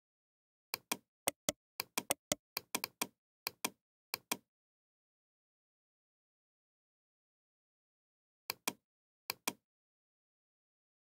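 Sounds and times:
computer mouse clicking: 0.8s - 4.4s.

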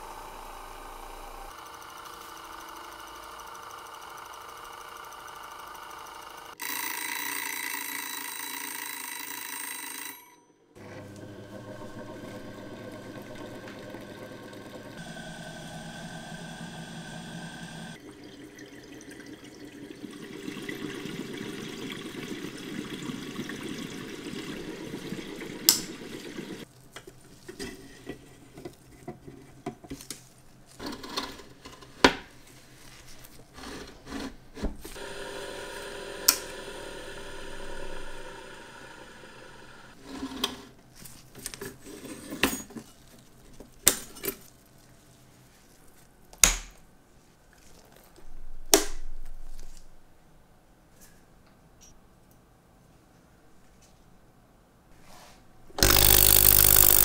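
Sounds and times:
cleaning machine whirring: 0.0s - 8.1s, 10.8s - 18.5s, 20.0s - 26.7s, 34.9s - 40.0s, 55.8s - 57.0s.

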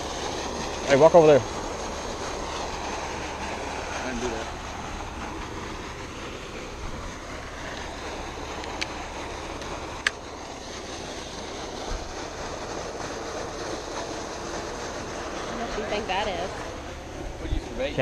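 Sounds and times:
outdoor noise on microphone: 0.0s - 18.0s.

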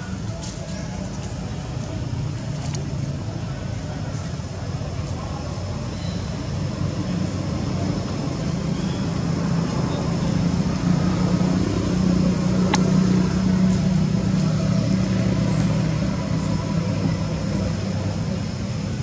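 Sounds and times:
low motor hum: 1.0s - 19.0s
sharp click: 12.7s - 12.9s.

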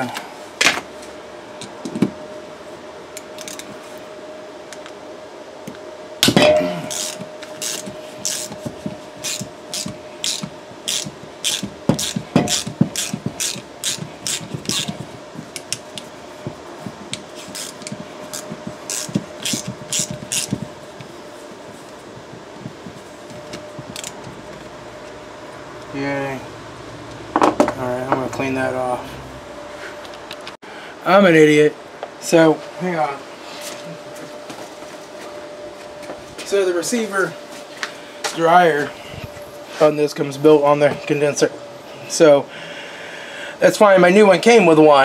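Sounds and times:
faint steady hum: 0.0s - 45.0s
hand ratchet clicking: 6.9s - 8.6s, 9.2s - 15.0s, 17.1s - 20.6s, 23.8s - 24.3s.

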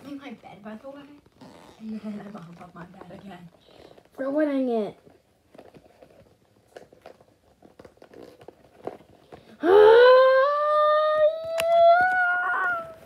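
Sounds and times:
faint rustling: 0.0s - 9.6s.

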